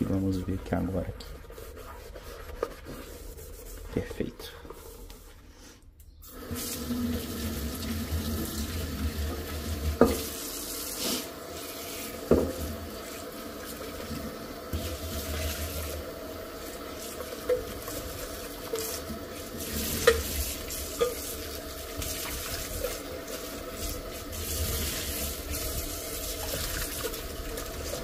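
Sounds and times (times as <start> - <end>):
tap water splashing in a pot: 6.4 - 10.4, 12.2 - 28.0.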